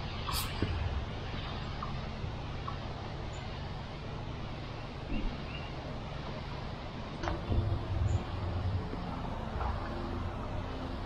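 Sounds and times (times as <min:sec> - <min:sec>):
low hum: 0:00.0 - 0:11.0
sprayer hissing: 0:00.2 - 0:00.6.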